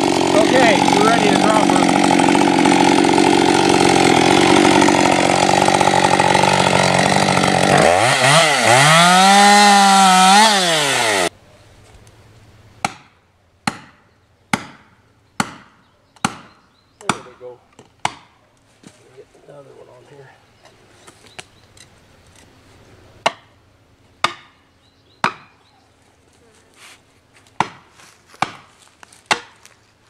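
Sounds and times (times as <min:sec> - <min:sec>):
chainsaw cutting into tree: 0:00.0 - 0:11.3
sharp blows on wood: 0:12.8 - 0:17.4.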